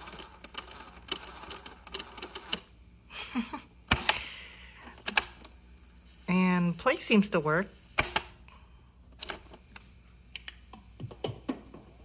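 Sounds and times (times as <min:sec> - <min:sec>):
cassette deck rewinding: 0:00.0 - 0:02.7.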